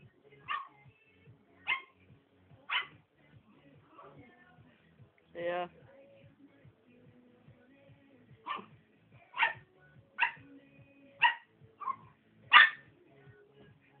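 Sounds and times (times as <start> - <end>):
puppy barking: 0.4 - 0.8, 1.6 - 2.0, 2.7 - 3.0, 8.4 - 8.7, 9.3 - 9.6, 10.2 - 10.4, 11.2 - 12.9.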